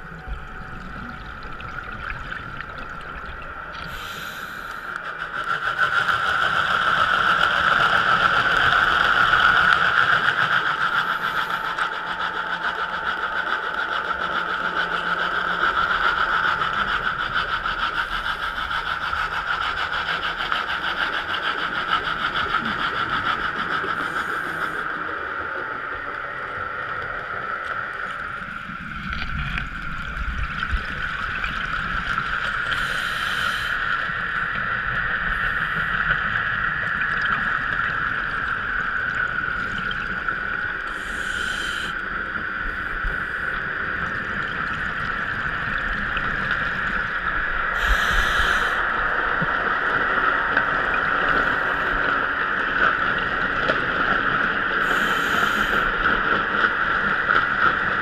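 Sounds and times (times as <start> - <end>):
steady underwater hum: 0.0 - 58.0.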